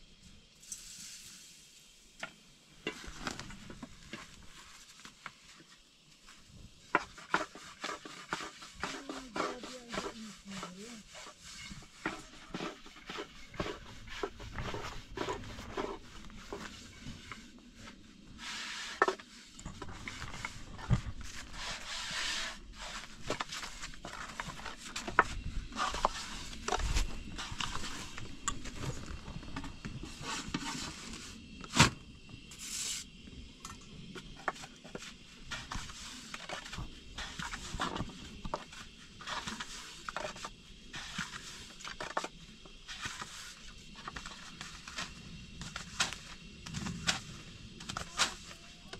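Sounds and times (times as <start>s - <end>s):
rolling pin rubbing dough: 6.9s - 17.3s.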